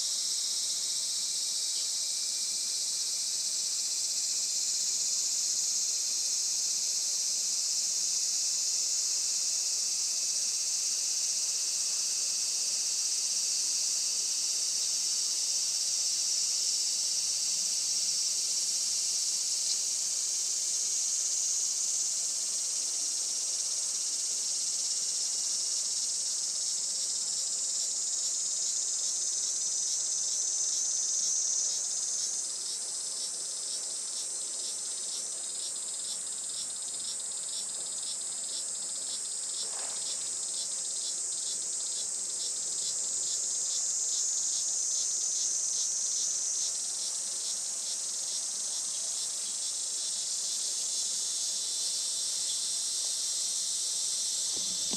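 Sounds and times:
cicadas buzzing: 0.0 - 54.9
pulsing insect song: 0.0 - 54.9.

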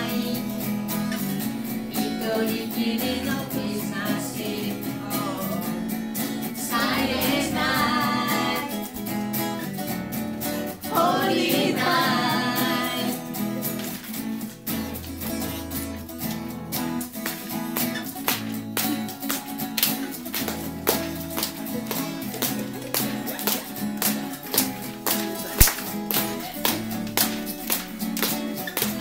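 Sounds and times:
woman singing: 0.0 - 0.7, 1.8 - 5.8, 6.6 - 8.9, 10.9 - 13.3
electric guitar through amplifier: 0.0 - 10.9, 11.6 - 29.0
strummed acoustic guitar: 0.0 - 29.0.

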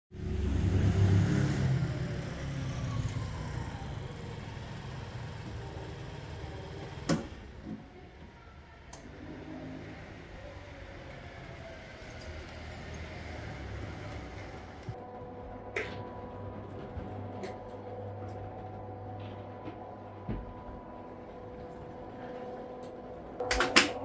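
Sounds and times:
vehicle engine passing: 0.1 - 7.1, 9.2 - 15.0.

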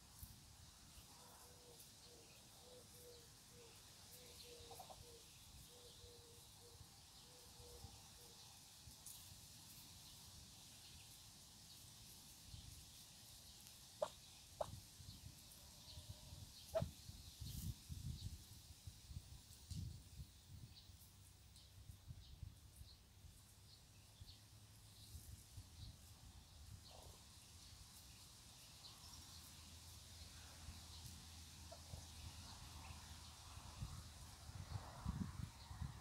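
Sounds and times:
faint outdoor ambience: 0.0 - 36.0
ducklings peeping: 4.6 - 5.0, 14.0 - 14.8, 16.6 - 16.9.

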